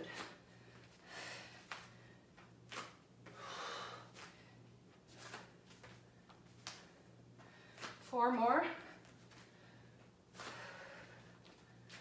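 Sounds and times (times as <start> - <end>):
faint steady hum: 0.0 - 12.0
woman breathing hard: 0.1 - 2.3, 3.3 - 4.8, 7.4 - 8.0, 9.3 - 11.9.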